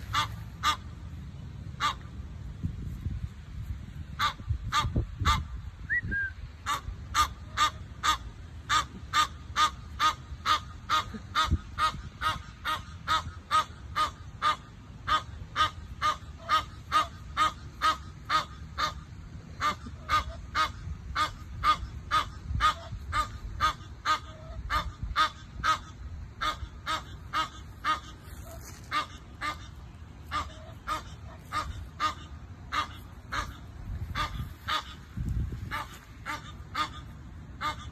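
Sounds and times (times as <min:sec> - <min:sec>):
geese honking: 0:00.0 - 0:00.9, 0:06.6 - 0:37.9.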